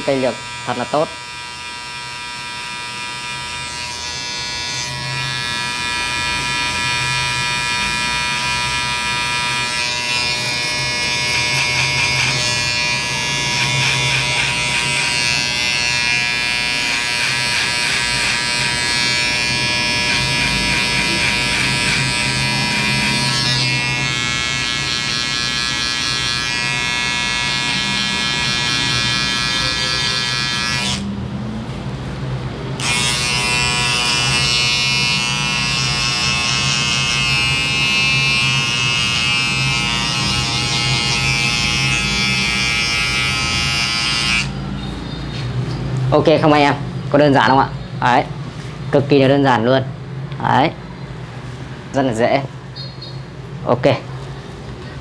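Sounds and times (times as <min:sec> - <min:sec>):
hair clipper buzzing: 0:00.0 - 0:31.1, 0:32.8 - 0:44.6.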